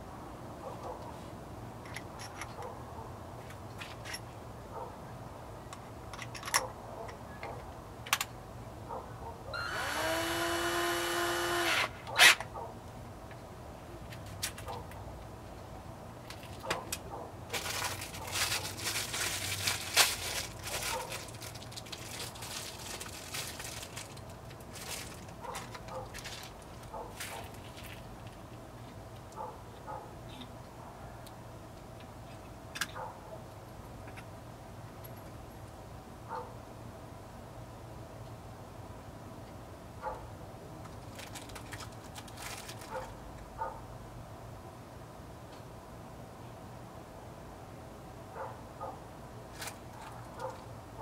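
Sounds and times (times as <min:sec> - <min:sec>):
scraping and rustling with clicks: 0:03.4 - 0:04.4, 0:16.2 - 0:30.6, 0:40.8 - 0:43.5, 0:49.5 - 0:50.7
power drill whining: 0:09.6 - 0:12.4.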